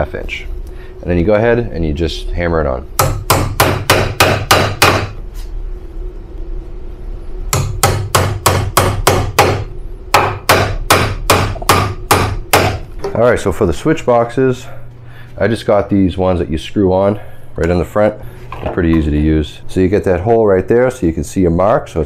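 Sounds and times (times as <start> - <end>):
hammer striking nails into wood: 3.0 - 5.2, 7.5 - 12.8.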